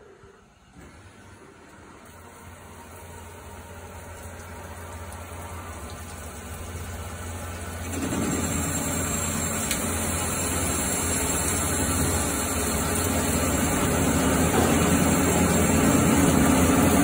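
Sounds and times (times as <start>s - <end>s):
coolant spraying hiss: 1.1s - 17.0s
lathe machine hum: 6.4s - 17.0s.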